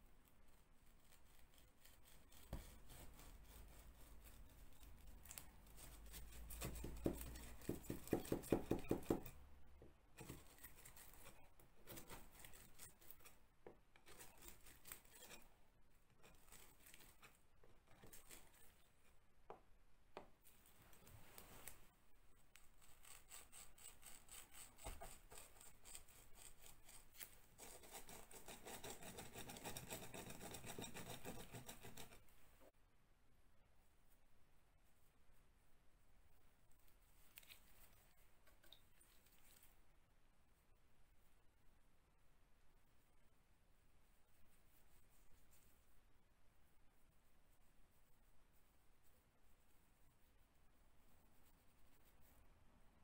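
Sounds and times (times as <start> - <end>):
hand tool scraping plaster wall: 0.4 - 9.4, 10.2 - 19.2, 22.7 - 32.4.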